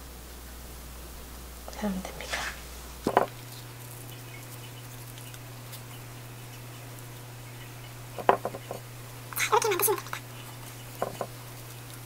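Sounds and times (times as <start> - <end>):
steady low hum: 0.0 - 12.0
soft knocks of patting: 11.0 - 11.3.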